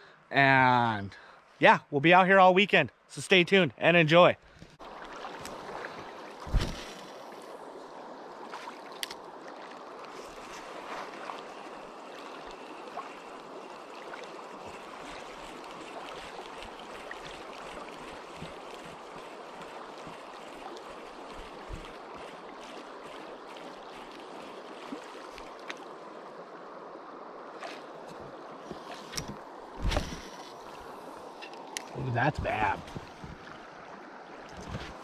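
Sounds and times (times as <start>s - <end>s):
river water flowing over gravel: 4.5s - 35.0s
thump: 6.4s - 6.9s.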